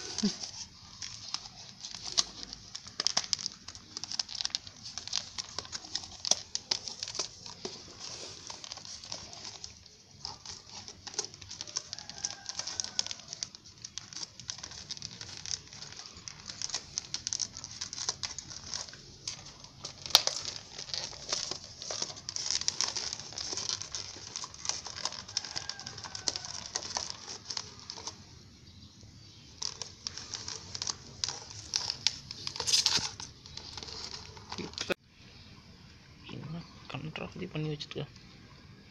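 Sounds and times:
dog chewing paper cup: 0.0 - 28.3, 29.5 - 34.9
paper cup crinkling: 0.0 - 35.0.

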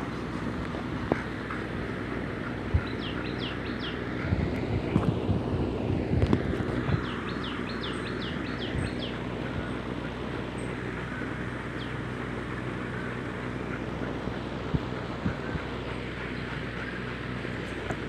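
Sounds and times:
steady background noise: 0.0 - 18.0
bird chirping: 2.8 - 4.0, 6.9 - 9.2.

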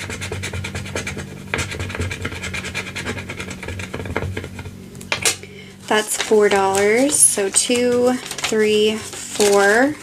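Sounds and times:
scratch-off coating being scratched: 0.0 - 4.7.

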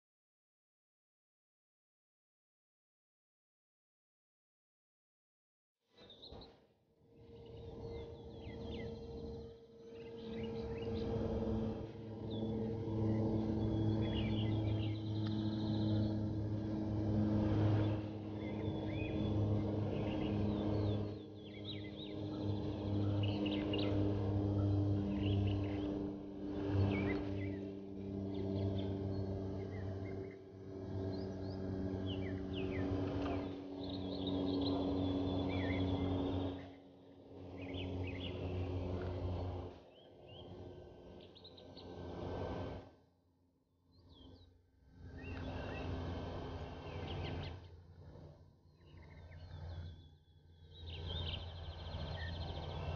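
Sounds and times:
low engine-like hum: 5.9 - 52.9
birds chirping faintly: 7.2 - 42.7, 45.1 - 52.9.

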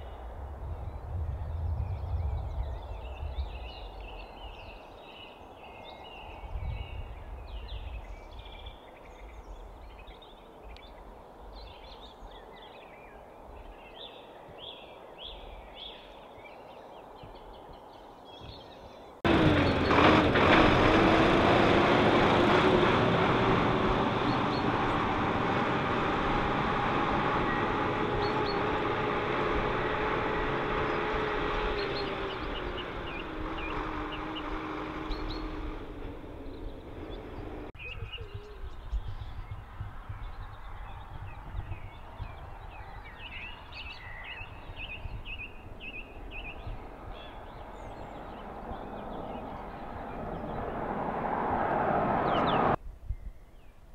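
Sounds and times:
loud steady engine noise: 19.3 - 37.7
small birds chirping: 26.0 - 30.0, 30.6 - 50.9.

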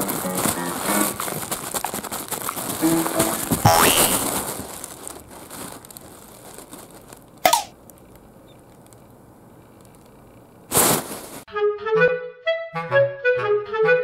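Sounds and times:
plastic bag rustling: 0.0 - 9.0, 9.8 - 11.5
plastic bag crinkling: 0.0 - 11.5.

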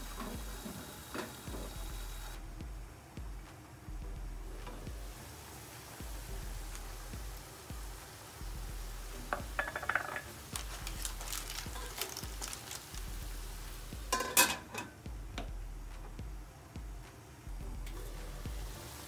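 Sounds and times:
food sizzling in a frying pan: 0.0 - 2.4, 4.7 - 15.0, 17.9 - 19.0
glass lid clanking onto pan: 9.3 - 10.3, 14.1 - 15.0.

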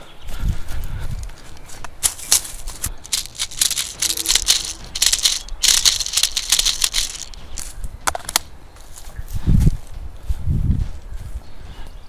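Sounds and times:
dry leaves crunching: 1.7 - 9.1.

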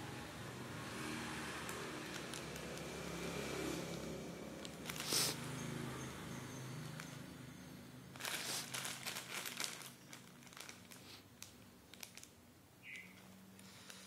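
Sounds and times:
plastic packet crinkling: 1.7 - 3.0, 4.6 - 5.4, 8.1 - 14.0.

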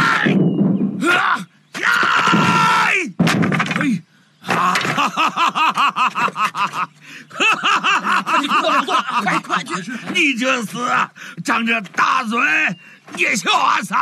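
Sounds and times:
man yelling: 0.0 - 0.4, 1.0 - 3.2, 9.1 - 14.0
wooden plank whack: 2.0 - 3.9
hearty laughter: 4.5 - 11.1.

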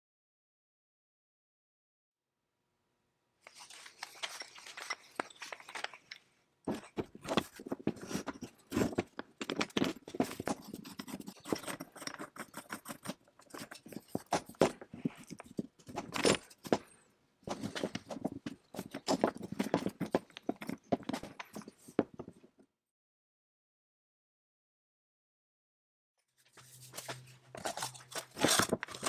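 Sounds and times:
metal tool clicking and scraping: 8.1 - 16.9.

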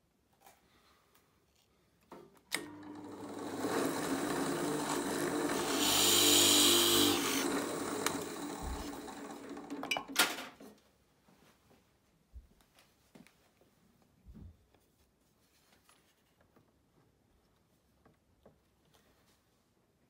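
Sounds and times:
drill press motor running: 2.6 - 9.9
drill bit boring into wood: 2.7 - 9.9.

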